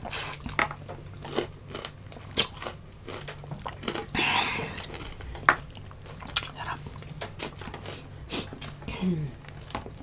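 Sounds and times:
crunchy chewing: 1.2 - 8.0.

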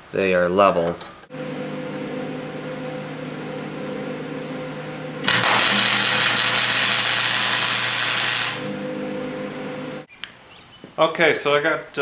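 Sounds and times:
welder hum: 1.3 - 10.1
welding arc crackling and hissing: 5.2 - 8.8.

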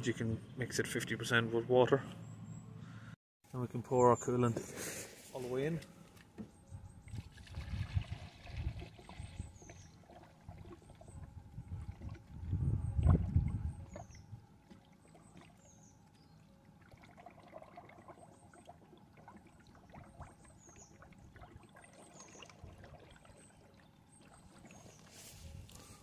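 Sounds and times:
liquid trickling into funnel: 7.1 - 25.9.

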